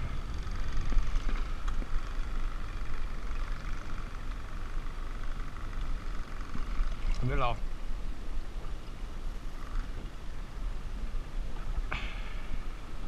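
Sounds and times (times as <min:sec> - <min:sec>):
wind buffeting microphone: 0:00.0 - 0:03.1
boat motor humming: 0:00.0 - 0:13.0
water sloshing: 0:02.8 - 0:10.6.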